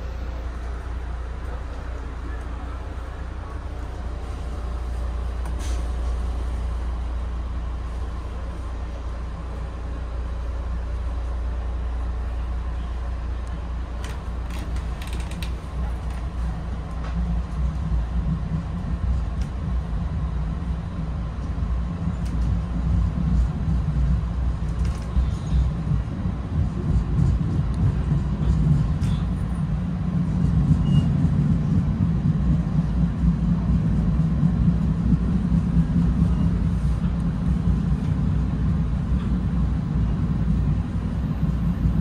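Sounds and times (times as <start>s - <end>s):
train coach rumble: 0.0s - 42.0s
car body creaks and clicks: 14.4s - 16.2s.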